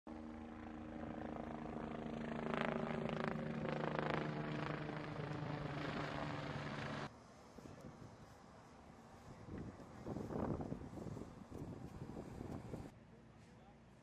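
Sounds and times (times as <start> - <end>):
steady engine drone: 2.4 - 9.4.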